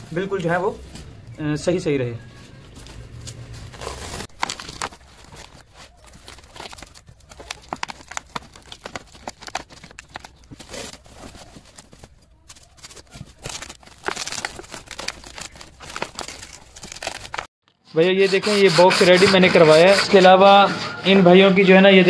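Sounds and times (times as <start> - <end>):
foam and plastic rustling: 2.3 - 17.5.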